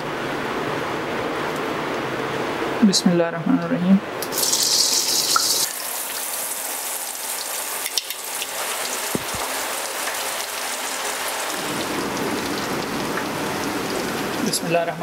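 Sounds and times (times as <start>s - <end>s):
chicken sizzling in hot oil: 4.2s - 14.7s.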